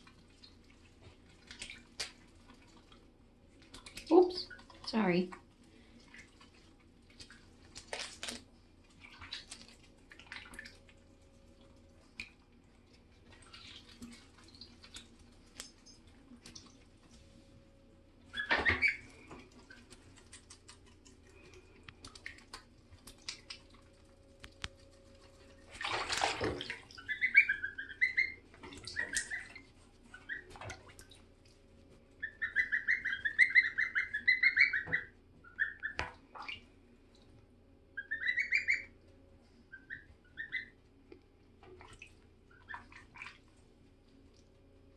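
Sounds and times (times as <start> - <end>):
water splashing and sloshing: 0.0 - 44.9
goslings peeping: 18.3 - 19.1, 26.9 - 30.6, 32.2 - 36.6, 38.0 - 39.0, 39.7 - 40.8.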